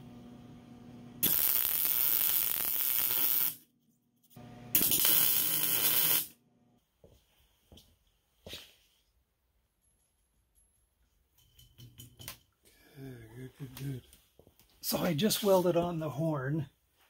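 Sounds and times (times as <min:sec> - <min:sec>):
low electrical hum: 0:00.0 - 0:07.8
welder crackling hiss: 0:01.2 - 0:03.6, 0:04.8 - 0:06.3.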